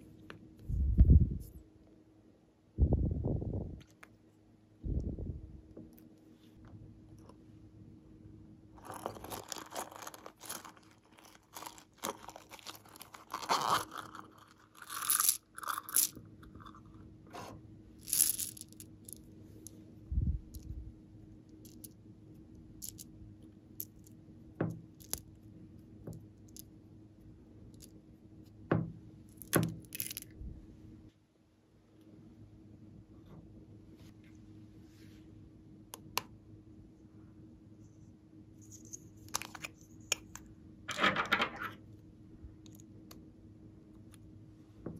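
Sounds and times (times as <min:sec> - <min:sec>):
crunchy crackles and clicks: 0:08.8 - 0:16.8.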